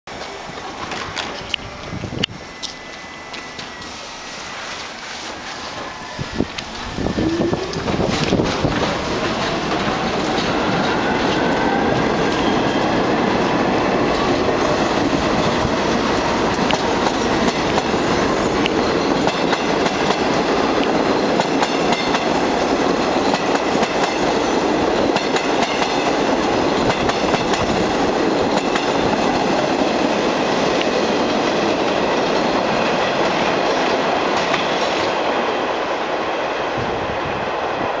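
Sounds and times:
subway train whine: 0.1 - 38.0
train rumbling: 0.1 - 38.0
wheels clattering on rails: 5.8 - 35.4.

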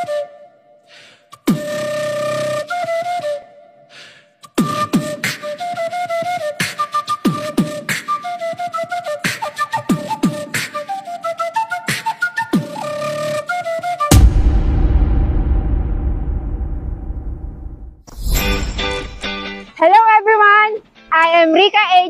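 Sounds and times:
flute-like melody: 0.0 - 15.2
deep drum hits: 14.1 - 18.0.

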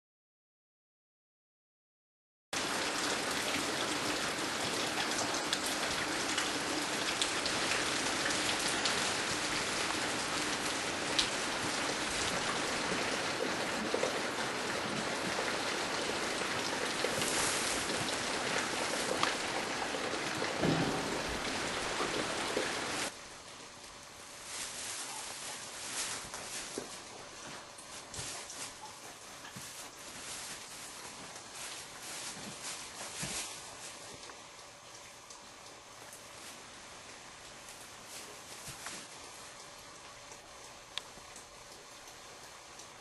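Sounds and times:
rain hissing: 2.6 - 28.8.

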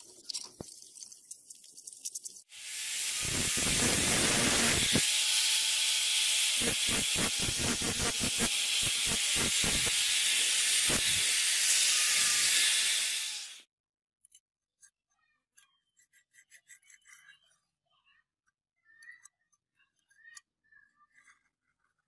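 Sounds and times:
angle grinder grinding steel: 2.5 - 13.7.

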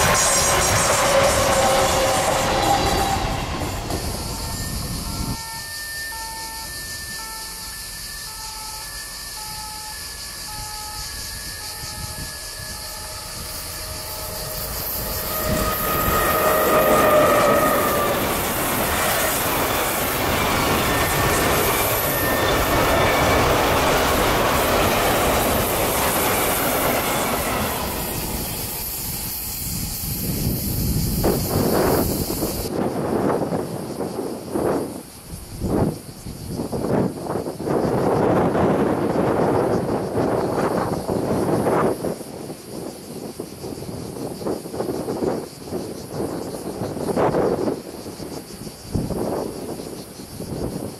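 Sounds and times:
high squeal: 0.0 - 32.8
freight train wheels rumbling: 0.0 - 50.9.

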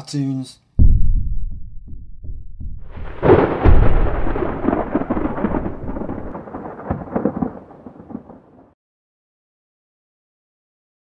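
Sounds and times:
thunderclap rumble: 0.8 - 8.7.

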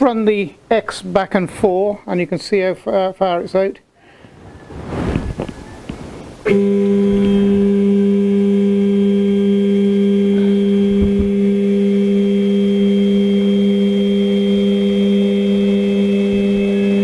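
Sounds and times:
stepper motor whine: 6.5 - 17.0.

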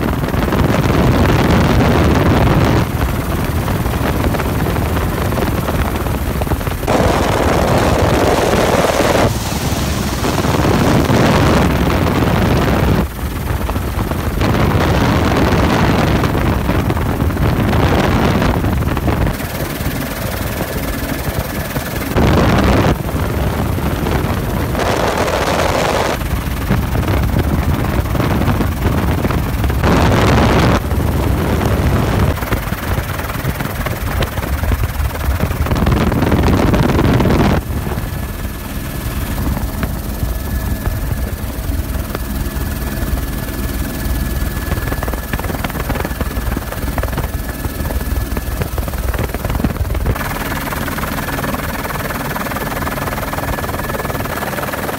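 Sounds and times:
wind gusts hitting microphone: 0.0 - 52.0
helicopter rotor and engine drone: 0.0 - 54.9
high whine: 6.7 - 13.1, 21.7 - 32.5.

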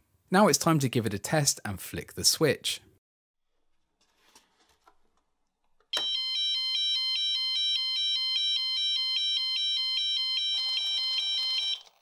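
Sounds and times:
two-tone buzzer warning alarm: 6.0 - 11.9.

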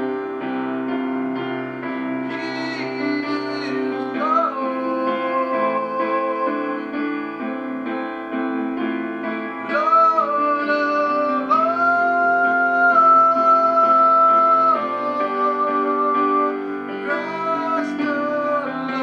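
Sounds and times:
instrumental accompaniment: 0.0 - 19.0
man singing: 1.9 - 7.5, 9.5 - 19.0.

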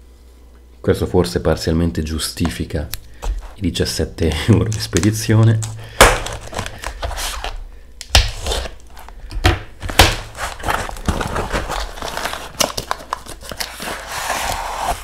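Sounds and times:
packing tape being slit and peeled: 4.6 - 9.2, 9.8 - 15.0
foam sleeve rustling and crinkling: 6.2 - 7.6, 10.2 - 15.0.

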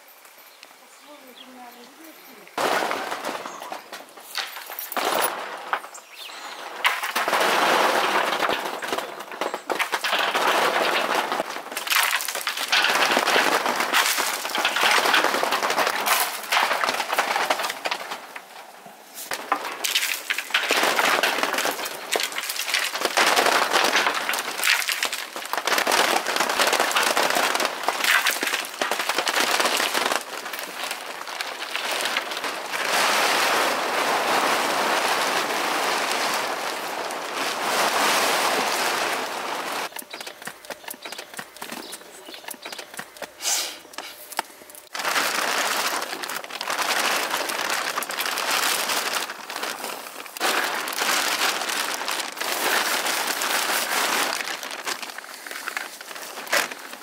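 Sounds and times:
twigs cracking and rattling: 2.6 - 33.8, 38.7 - 57.0
berries falling onto plastic tarp: 2.6 - 57.0
pole beating tree branches: 19.3 - 43.4.

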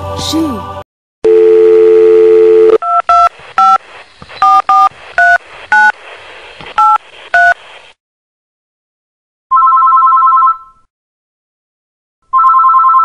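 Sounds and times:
telephone dial tone: 1.3 - 3.8, 9.5 - 10.6, 12.4 - 13.0
touch-tone keypad beeps: 1.3 - 3.8, 4.4 - 5.9.

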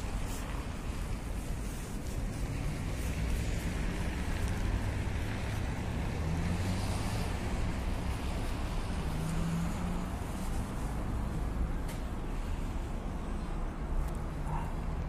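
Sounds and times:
passing vehicle engines: 0.0 - 15.0
road traffic rumble: 0.0 - 15.0.

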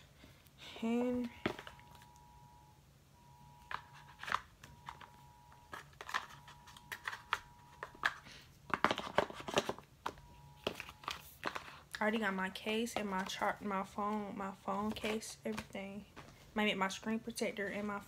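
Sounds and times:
packaging rustling: 3.7 - 13.6.

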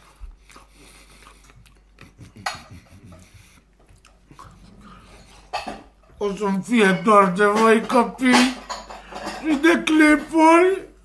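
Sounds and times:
chewing and mouth noises: 0.0 - 5.6.

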